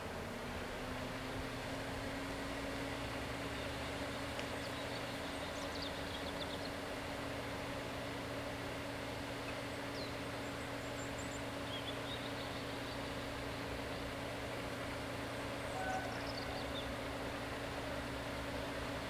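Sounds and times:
steady low hum: 0.0 - 19.0
small birds chirping: 3.3 - 7.3, 9.3 - 18.0.

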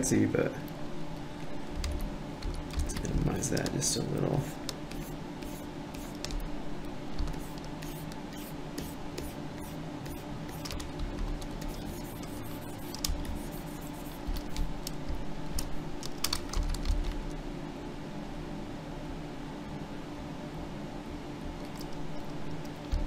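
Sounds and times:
steady low hum: 0.0 - 23.0
computer keys clicking: 1.7 - 6.5, 7.2 - 17.4, 21.6 - 23.0.

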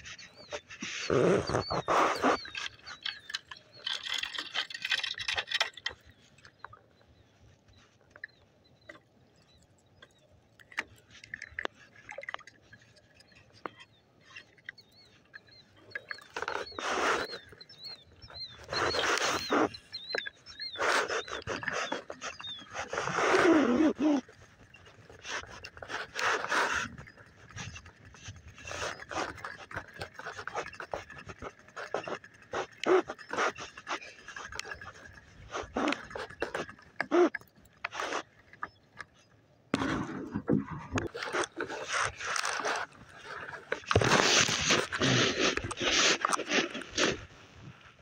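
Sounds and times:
small animal chirping: 13.7 - 24.3.

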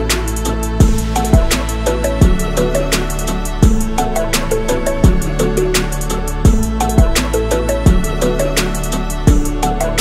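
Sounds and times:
sustained bass: 0.0 - 10.0
deep bass drum: 0.7 - 8.3, 9.2 - 9.8.

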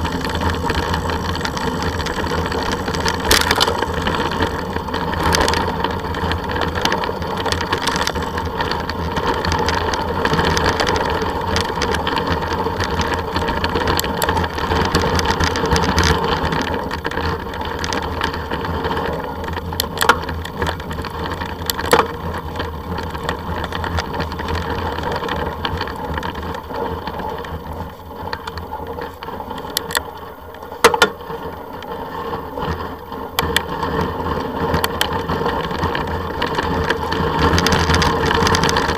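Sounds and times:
tyres rumbling: 0.0 - 9.4
rattle: 0.0 - 15.8.

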